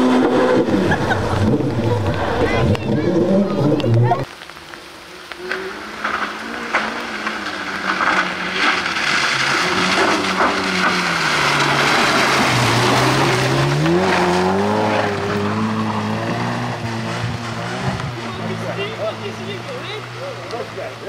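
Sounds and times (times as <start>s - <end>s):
rally car engine accelerating: 0.0s - 4.3s, 5.2s - 21.0s
tyre noise: 0.0s - 21.0s.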